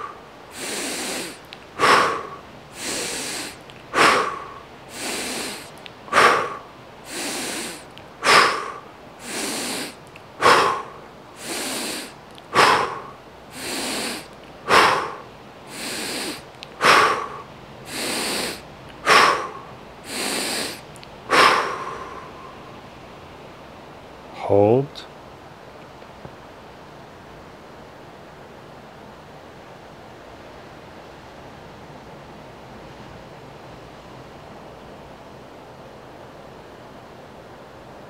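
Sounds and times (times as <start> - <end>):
forceful exhales through mouth: 0.0 - 22.7
soft inhales through nose: 0.0 - 22.7.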